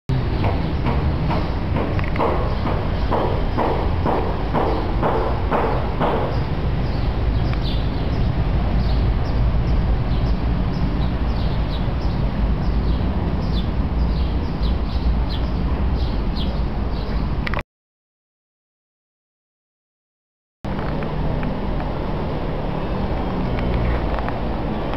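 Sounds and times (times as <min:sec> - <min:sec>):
small birds chirping: 0:00.3 - 0:17.4.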